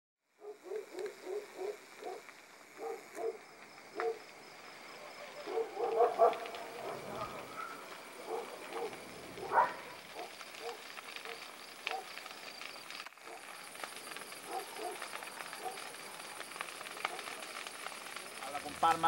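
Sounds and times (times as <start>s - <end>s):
distant dogs barking: 0.4s - 12.3s, 13.2s - 16.2s, 16.8s - 17.5s.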